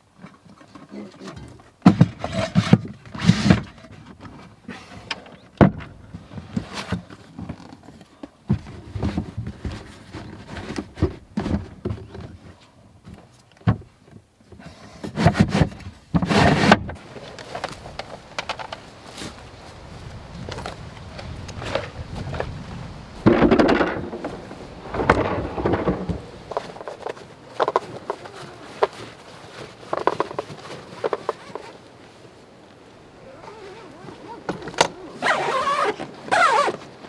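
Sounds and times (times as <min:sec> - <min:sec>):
wooden knocks and thumps: 0:01.4 - 0:04.4, 0:05.6 - 0:07.6, 0:13.0 - 0:13.9, 0:23.2 - 0:29.0
rubbing and sliding: 0:14.6 - 0:19.9, 0:20.5 - 0:32.1, 0:35.2 - 0:36.9
upholstery rustling: 0:20.5 - 0:31.9, 0:33.3 - 0:36.8.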